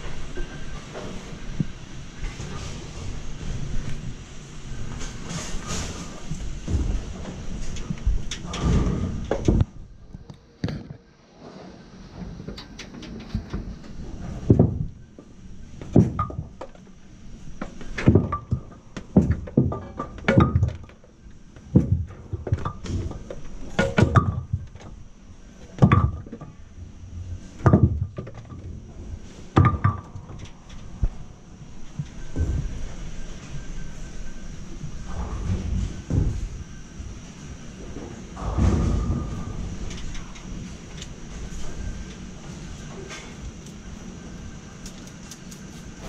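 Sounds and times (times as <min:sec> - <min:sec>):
faint high whine: 0:00.0 - 0:46.0
rumbling clatter: 0:25.6 - 0:44.8
hollow knocks inside pinsetter: 0:29.6 - 0:30.4.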